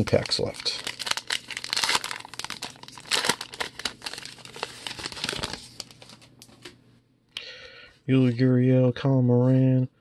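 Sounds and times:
wrapper crinkling and tearing: 0.0s - 6.4s.

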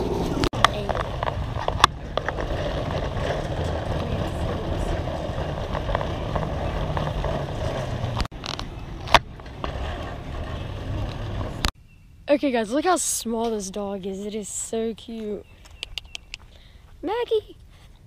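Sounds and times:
cart basket rattling: 0.0s - 11.7s
shopping cart wheels rumbling: 0.0s - 11.7s
sharp clacks: 15.6s - 16.5s.

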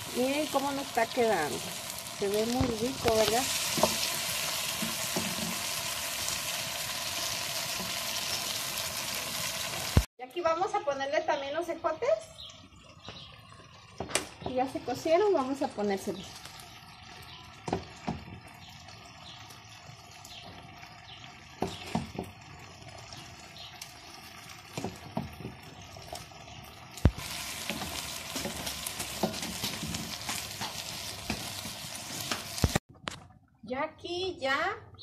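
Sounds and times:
food sizzling in a wok: 0.0s - 10.1s, 21.3s - 32.8s.

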